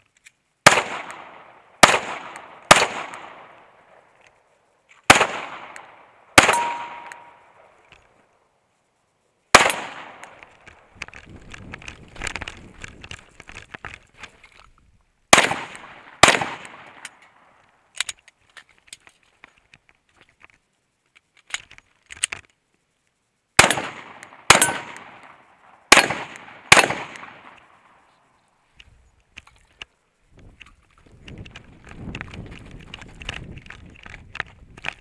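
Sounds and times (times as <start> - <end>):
pistol shots: 0.6 - 3.6, 5.1 - 7.5, 9.5 - 10.4, 15.3 - 17.0, 23.6 - 27.6
rustling of gear: 10.4 - 15.1, 28.0 - 35.0.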